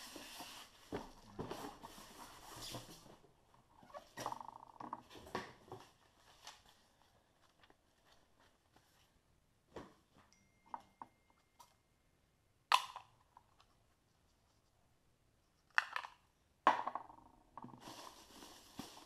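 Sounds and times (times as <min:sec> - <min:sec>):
polystyrene blocks rubbing: 0:00.0 - 0:03.1, 0:17.7 - 0:19.0
plastic wrapping crinkling: 0:17.8 - 0:19.0.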